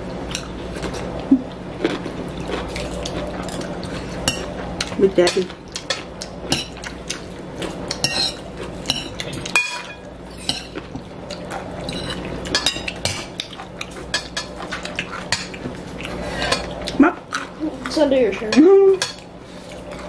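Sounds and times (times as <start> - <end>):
cutlery clinking on ceramic bowls: 4.2 - 7.0, 7.9 - 10.9, 11.9 - 15.6, 17.3 - 19.3.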